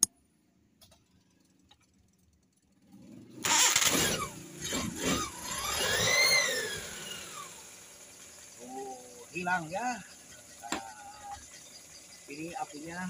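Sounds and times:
car engine starting and revving: 2.7 - 13.0.

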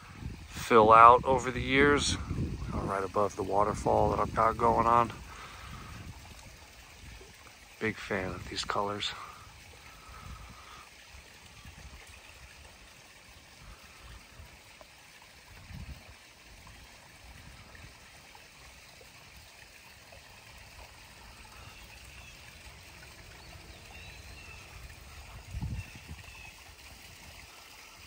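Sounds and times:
waterfall running water: 0.0 - 28.0.

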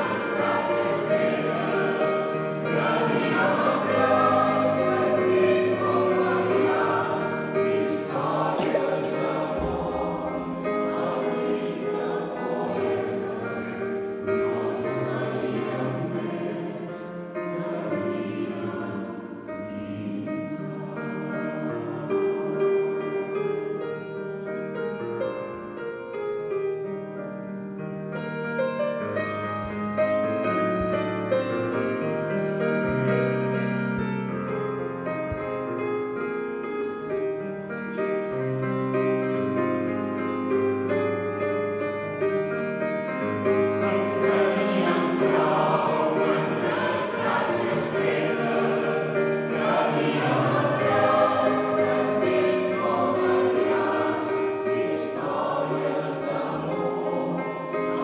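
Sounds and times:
mixed choir singing: 0.0 - 25.6, 37.2 - 58.0
keyboard accompaniment: 0.0 - 58.0.

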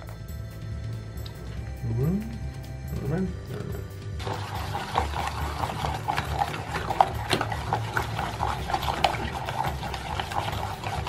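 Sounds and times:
spoon scraping saucepan: 4.2 - 11.0.

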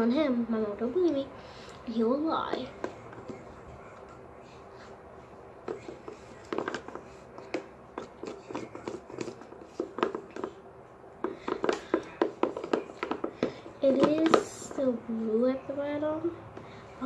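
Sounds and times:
spoon stirring slime: 1.9 - 10.6, 11.2 - 15.4.

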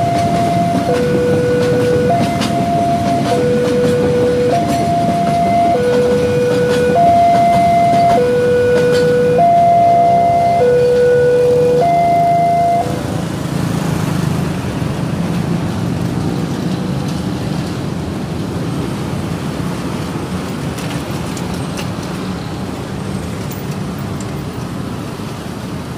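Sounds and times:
level crossing two-tone alarm: 0.0 - 13.0
road traffic rumble: 0.0 - 25.9.

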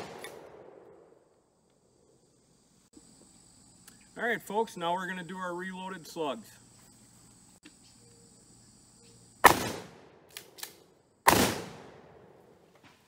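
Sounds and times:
shotgun blasts: 0.0 - 1.0, 9.4 - 12.5.

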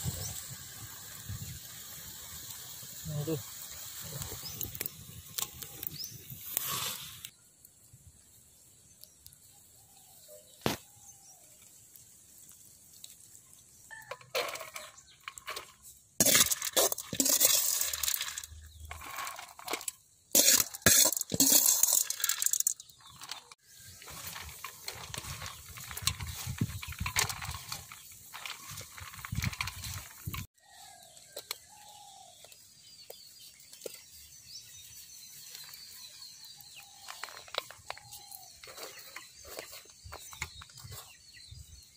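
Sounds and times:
dry grains rattling on steel plate: 14.0 - 30.5
hands mixing grains on plate: 14.2 - 30.9.

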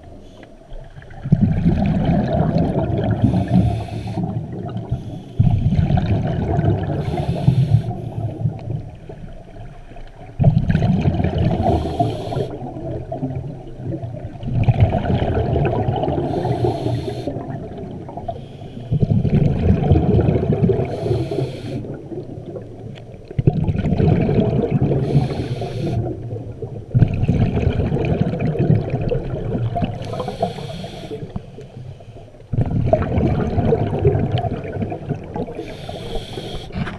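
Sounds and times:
exhaled bubbles rushing: 0.7 - 31.5, 32.5 - 36.9
regulator inhale hiss: 3.2 - 5.5, 7.0 - 8.5, 11.6 - 12.7, 16.2 - 17.4, 18.3 - 19.1, 20.8 - 22.0, 25.0 - 26.1, 30.0 - 32.3, 35.6 - 36.9.

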